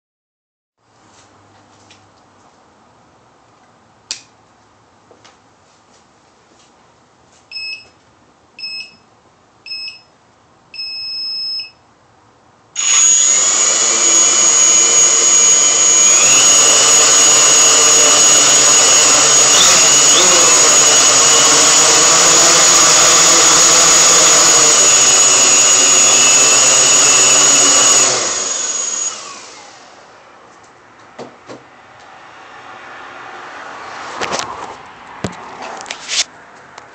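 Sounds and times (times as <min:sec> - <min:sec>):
drone motors whining: 0:12.8 - 0:30.1
short electronic beeps: 0:19.0 - 0:21.2.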